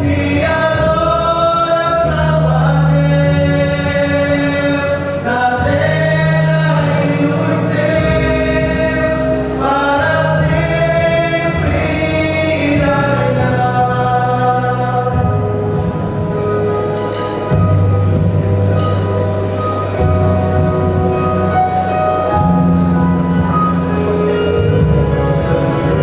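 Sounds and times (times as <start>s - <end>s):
male vocal quartet singing in harmony: 0.0s - 16.7s.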